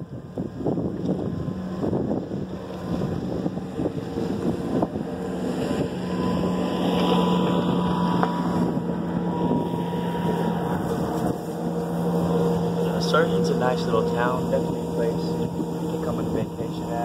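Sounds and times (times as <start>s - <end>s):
motorboat engine running: 0.0s - 17.0s
wind buffeting microphone: 0.0s - 17.0s.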